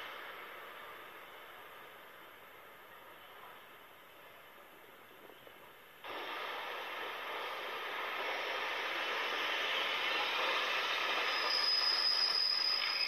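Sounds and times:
train rumble and rail noise: 0.0 - 13.0
high wheel squeal: 9.5 - 13.0.

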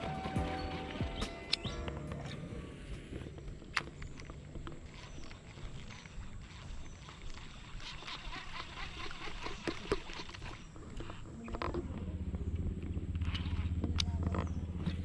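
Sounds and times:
fishing reel clicking: 3.4 - 11.6.

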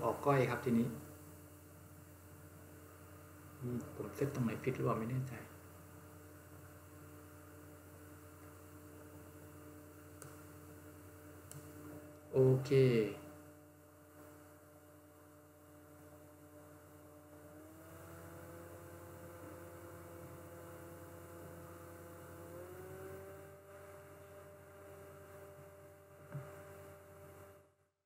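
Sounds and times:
computer cooling fan whirring: 0.0 - 27.9
click: 10.2 - 10.4, 11.4 - 12.3.

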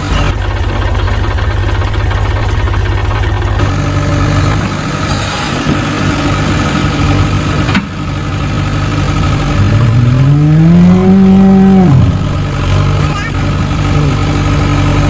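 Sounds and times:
tractor engine idling: 0.0 - 15.0
cow mooing: 9.5 - 12.3.

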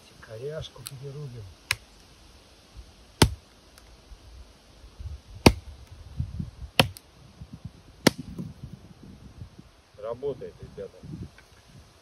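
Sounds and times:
knife chopping branch: 3.2 - 3.4, 5.4 - 5.7, 6.8 - 7.0, 8.0 - 8.4.

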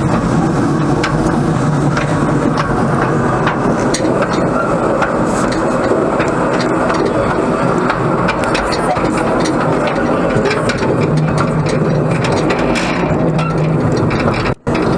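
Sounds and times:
steam locomotive running: 0.0 - 14.9
wheels clicking and rattling on rails: 0.0 - 14.9.

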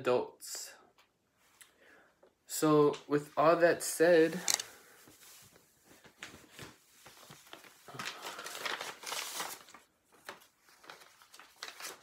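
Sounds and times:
paper rustling and crinkling: 4.3 - 12.0.

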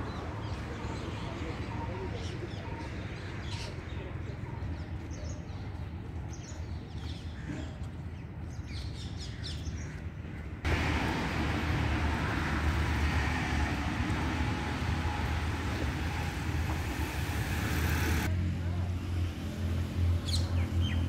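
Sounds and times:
road traffic rushing: 10.6 - 21.0.

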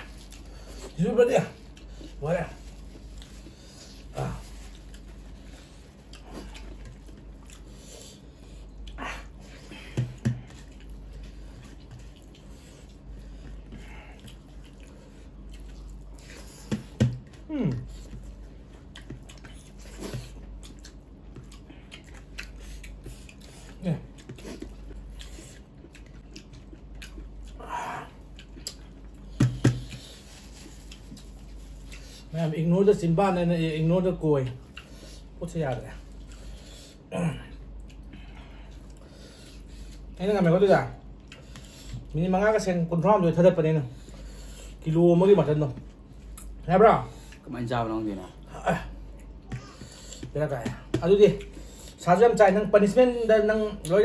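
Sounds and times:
chewing and squishing of food: 0.0 - 54.0.

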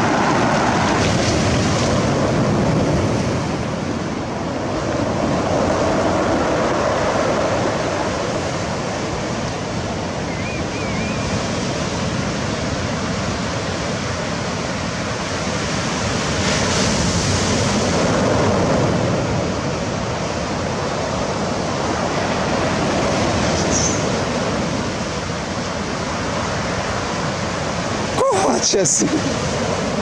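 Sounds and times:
waves washing in: 0.0 - 30.0
wind noise on microphone: 0.0 - 30.0.

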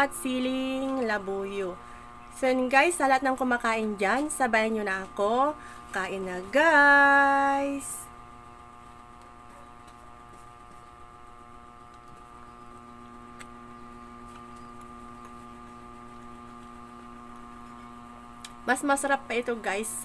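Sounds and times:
electrical hum: 0.0 - 20.0
soft chewing clicks: 11.9 - 17.7.

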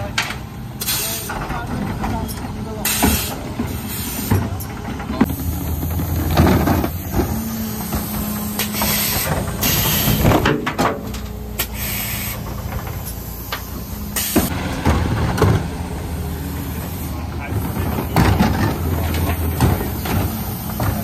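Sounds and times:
truck engine running: 0.0 - 21.0
hydraulic hisses and knocks: 2.8 - 4.6, 6.6 - 10.5, 11.6 - 14.5
bin clattering: 6.0 - 7.4.

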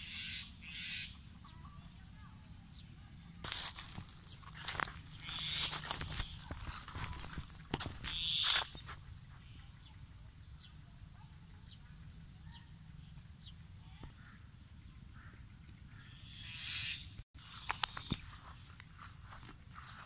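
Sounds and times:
dry leaves rustling and crackling: 3.4 - 9.0.

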